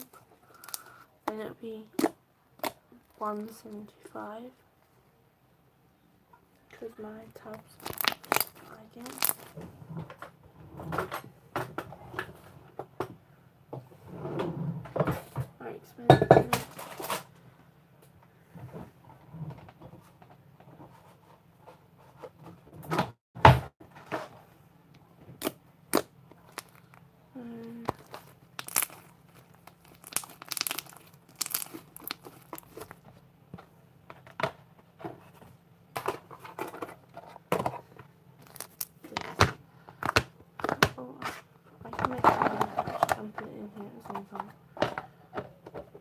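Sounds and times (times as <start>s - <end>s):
slime crackling and tearing: 0.0s - 0.9s, 1.9s - 3.8s, 7.4s - 9.6s, 25.4s - 27.0s, 27.6s - 33.0s, 38.4s - 39.1s.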